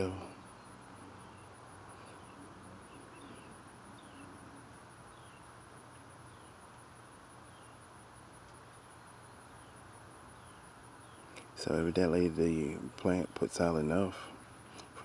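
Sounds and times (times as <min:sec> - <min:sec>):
high-pitched insect trill: 0:00.0 - 0:15.0.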